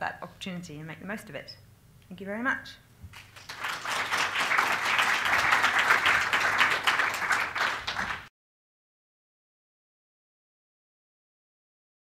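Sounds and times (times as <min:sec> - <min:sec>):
audience applauding: 0:03.1 - 0:08.3.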